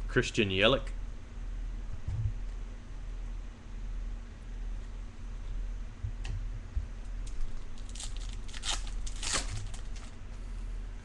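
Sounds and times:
low steady hum: 0.0 - 11.0
wrapper tearing and crinkling: 7.3 - 10.1.

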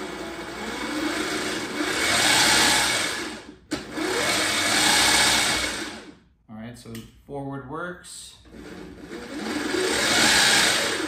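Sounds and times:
electric outboard motor whining: 0.0 - 6.1, 8.5 - 11.0.

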